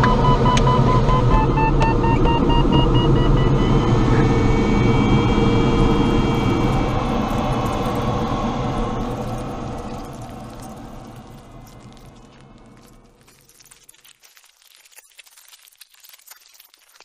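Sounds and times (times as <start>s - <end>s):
variometer beeping: 0.0s - 9.0s
airflow rush: 3.6s - 12.7s.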